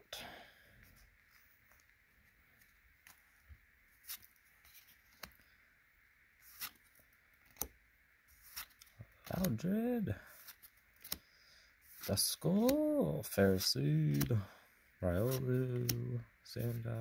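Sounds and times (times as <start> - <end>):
trading cards flipped: 4.0 - 5.5, 6.4 - 9.6, 10.3 - 11.3, 11.9 - 12.9, 13.6 - 14.4, 15.2 - 16.8.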